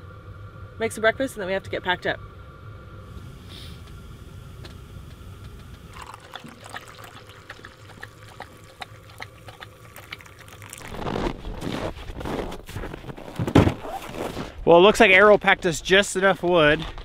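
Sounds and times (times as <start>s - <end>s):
coffee pouring into metal cup: 5.9s - 11.8s.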